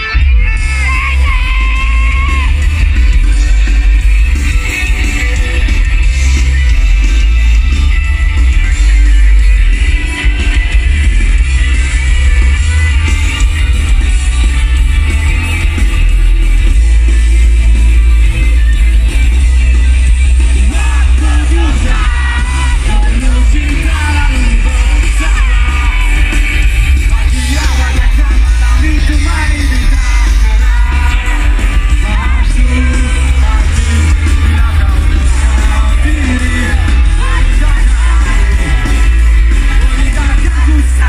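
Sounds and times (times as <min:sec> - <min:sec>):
live rock band with singing: 0:00.0 - 0:41.0.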